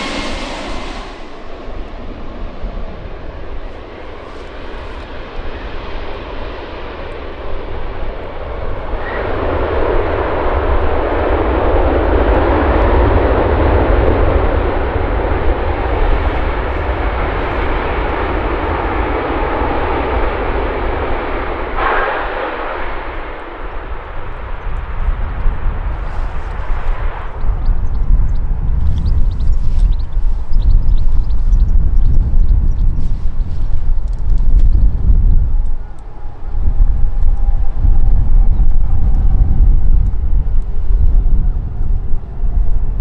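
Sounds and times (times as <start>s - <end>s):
jet engines roaring on landing: 0.0s - 25.6s, 35.5s - 40.8s.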